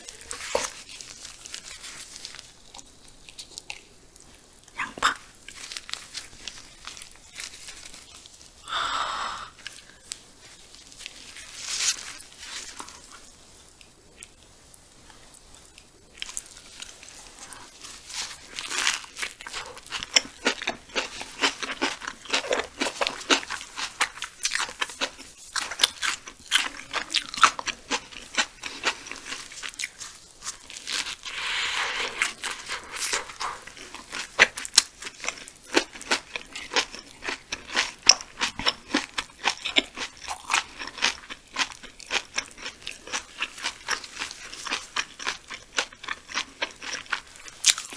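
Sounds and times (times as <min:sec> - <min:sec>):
wet chewing and smacking: 0:15.6 - 0:31.3, 0:32.2 - 0:47.9.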